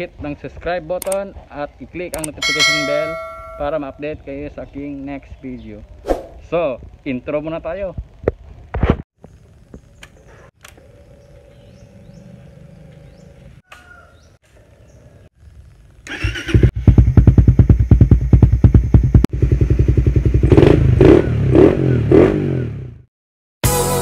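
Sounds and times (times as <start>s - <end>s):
motorcycle engine starting and idling: 14.6s - 21.3s.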